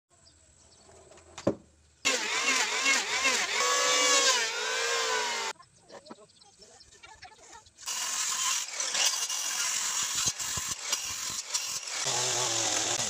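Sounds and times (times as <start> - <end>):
electric hand planer shaving wood: 2.1 - 5.6, 7.9 - 13.0.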